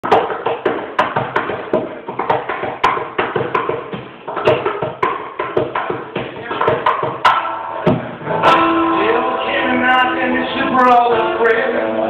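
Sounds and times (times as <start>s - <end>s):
guitar strummed: 7.2s - 12.0s.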